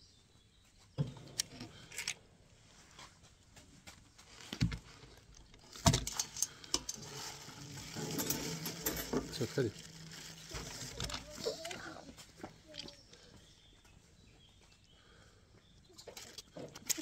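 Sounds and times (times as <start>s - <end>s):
light clicks and clinks: 5.2s - 13.4s.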